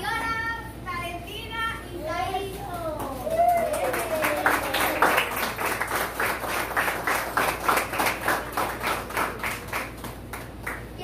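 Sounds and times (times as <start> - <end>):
audience clapping in rhythm: 3.4 - 11.0.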